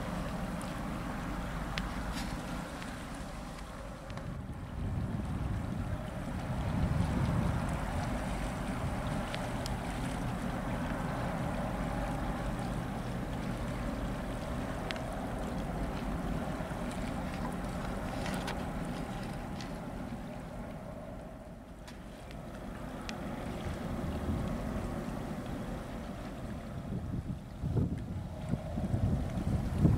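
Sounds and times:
wind on microphone: 0.0s - 21.6s, 22.4s - 29.9s
ship engine rumble: 0.0s - 29.9s
faint clicks: 14.4s - 16.1s.

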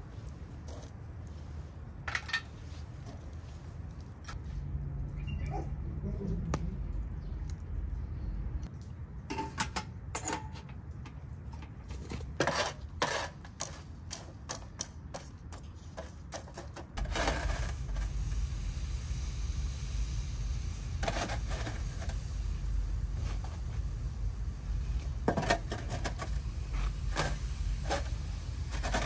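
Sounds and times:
metal rod scraping charcoal embers: 11.8s - 18.4s, 20.8s - 23.8s, 25.0s - 29.0s
low rumble: 17.0s - 25.4s.

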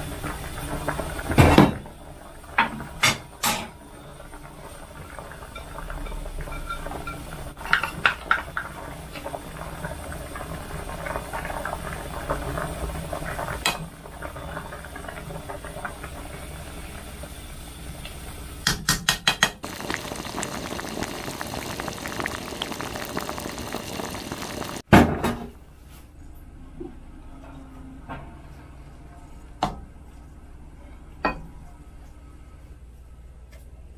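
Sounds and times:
soup bubbling in a pot: 0.0s - 18.6s, 19.6s - 24.9s.

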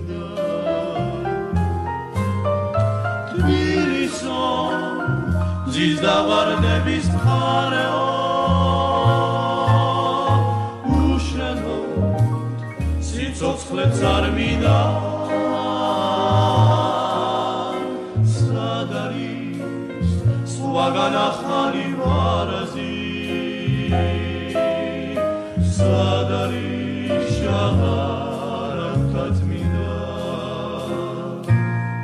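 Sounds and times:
choir singing: 0.0s - 2.2s, 3.2s - 31.6s
low bass accompaniment: 0.0s - 32.0s.

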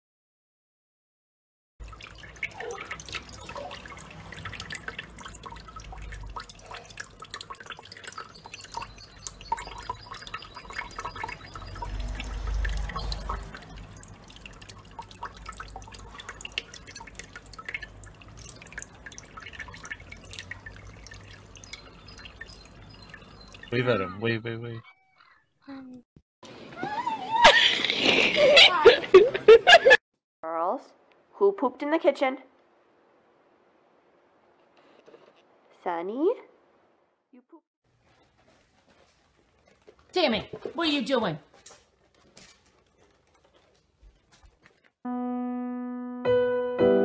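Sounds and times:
small bird splashing in water: 1.8s - 23.8s
tap water trickling into hands: 1.8s - 24.0s.

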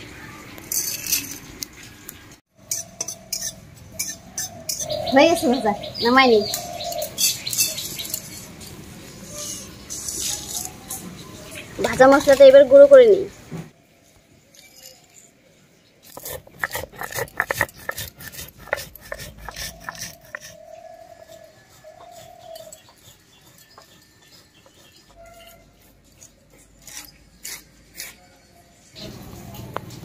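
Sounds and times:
crackling and knocking on stone slab: 16.1s - 20.6s.

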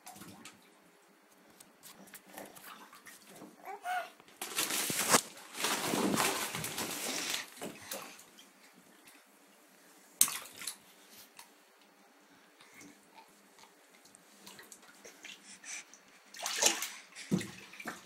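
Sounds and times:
bath water splashing: 4.5s - 8.2s, 10.2s - 11.4s, 16.3s - 18.0s.

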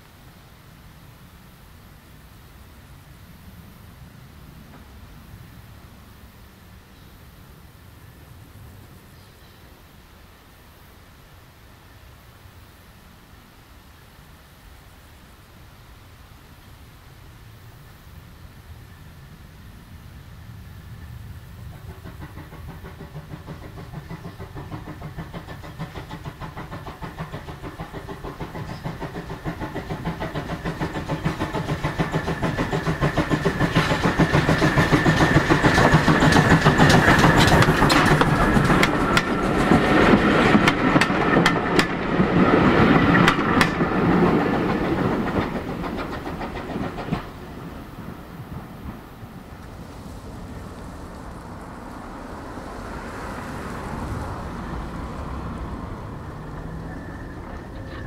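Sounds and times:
steam locomotive exhaust beats: 12.7s - 58.0s
wheels clicking over rail joints: 21.0s - 58.0s.

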